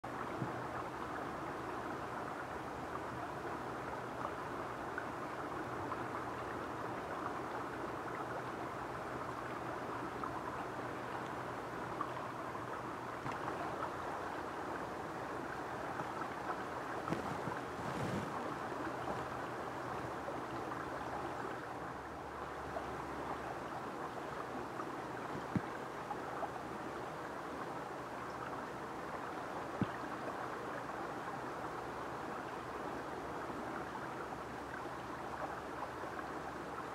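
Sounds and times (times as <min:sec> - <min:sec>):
river water flowing: 0:00.1 - 0:36.9
water swish: 0:08.8 - 0:23.2
faint ticks: 0:12.0 - 0:13.9, 0:24.8 - 0:26.2.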